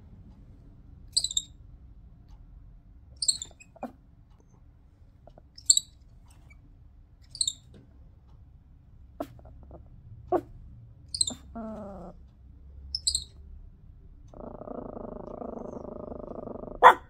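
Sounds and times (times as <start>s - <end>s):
tamarin high-pitched calls: 1.1s - 1.6s, 3.2s - 3.9s, 5.6s - 6.0s, 7.3s - 7.7s, 11.1s - 12.2s, 12.9s - 13.4s.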